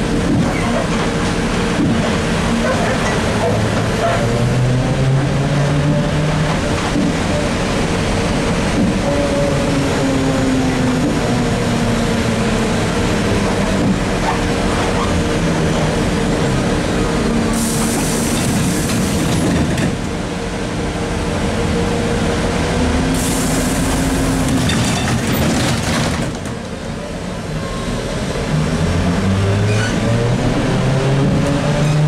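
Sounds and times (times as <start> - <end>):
road noise: 0.0 - 32.0
hiss: 17.6 - 19.3.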